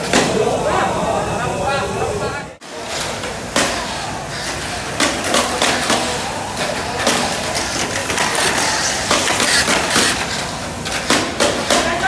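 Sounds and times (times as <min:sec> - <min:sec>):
toy cars whirring: 0:05.4 - 0:11.2.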